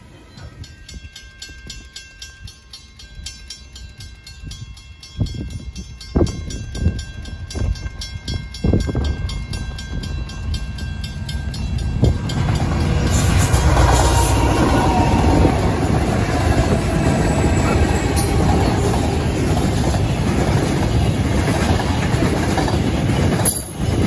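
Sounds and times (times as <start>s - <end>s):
diesel locomotive rumble: 8.7s - 24.0s.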